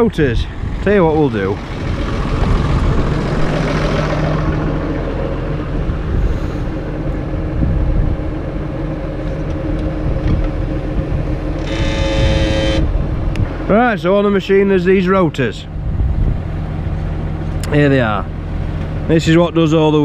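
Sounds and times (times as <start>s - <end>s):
tractor diesel engine running: 0.0s - 20.0s
high-pitched whine: 1.6s - 15.8s.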